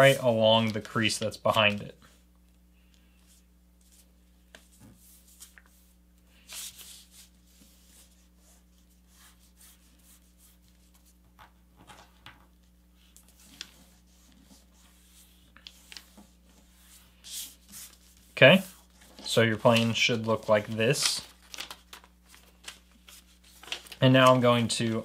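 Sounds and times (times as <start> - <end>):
paper rustling and sliding: 0.0 - 1.8, 3.2 - 11.2, 13.0 - 25.0
paper crinkles: 13.0 - 25.0.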